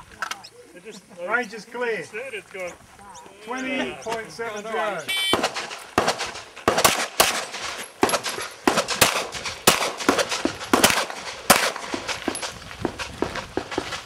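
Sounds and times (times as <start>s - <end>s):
pistol shots: 5.1s - 14.0s.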